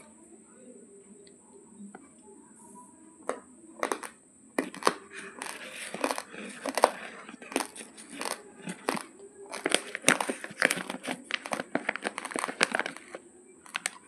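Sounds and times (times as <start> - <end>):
plastic bag crinkling: 3.8 - 14.0.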